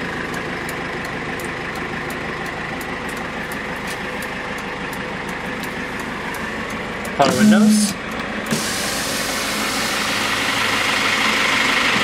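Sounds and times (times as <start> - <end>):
hazard flasher ticking: 0.0 - 8.5
diesel engine idling: 0.0 - 12.0.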